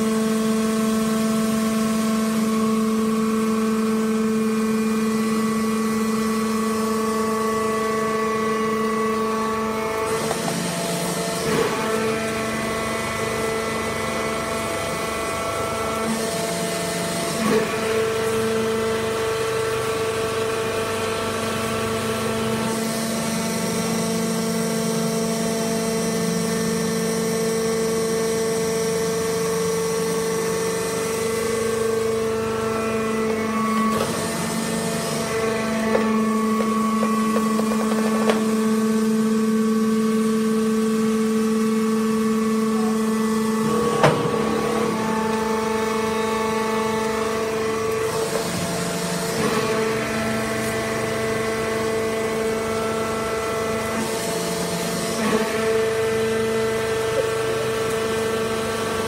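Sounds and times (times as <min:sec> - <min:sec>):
hydraulic press motor whine: 0:00.0 - 0:59.0.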